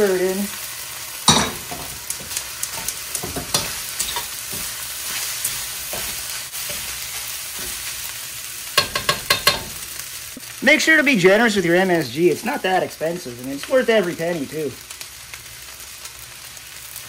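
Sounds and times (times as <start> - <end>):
food sizzling in a wok: 0.0 - 17.0
metal ladle scraping wok: 1.3 - 8.0.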